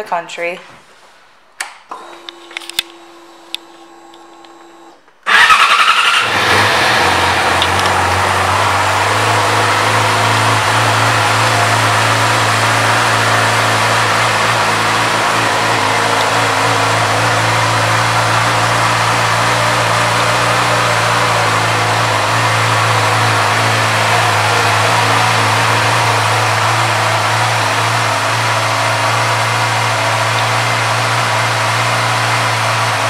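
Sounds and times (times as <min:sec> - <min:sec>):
click: 0:01.6 - 0:04.7
motorcycle engine starting and idling: 0:01.9 - 0:33.0.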